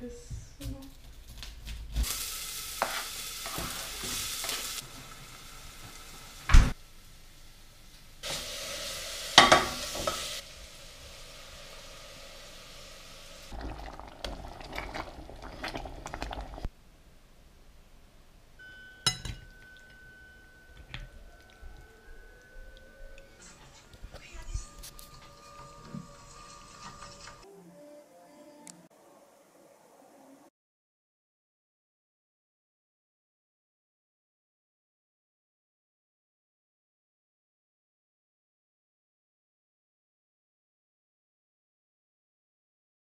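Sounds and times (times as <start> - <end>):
food sizzling in a pot: 2.0 - 16.7, 18.6 - 27.5
metal utensils clanking on pots: 9.4 - 10.4, 23.1 - 27.4.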